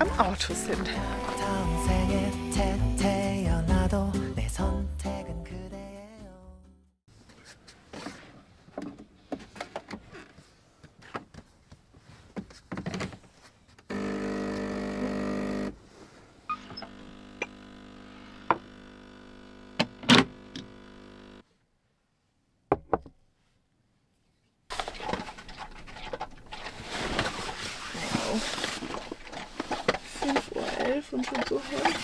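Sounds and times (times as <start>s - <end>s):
small electric motor humming: 13.9s - 15.8s, 16.5s - 21.4s.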